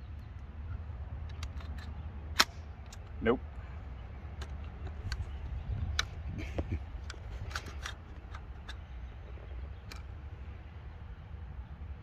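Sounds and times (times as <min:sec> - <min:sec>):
low wind rumble: 0:00.0 - 0:12.0
rifle metallic clicks and rattles: 0:01.2 - 0:03.2, 0:04.3 - 0:06.2, 0:06.9 - 0:09.0, 0:09.7 - 0:10.2.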